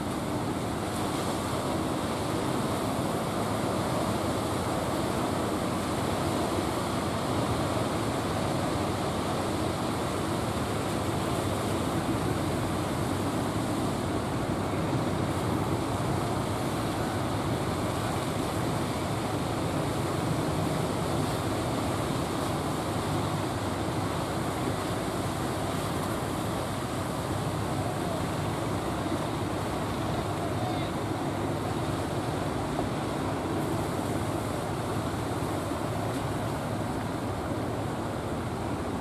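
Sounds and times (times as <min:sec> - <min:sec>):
surf and choppy water: 0:00.0 - 0:39.0.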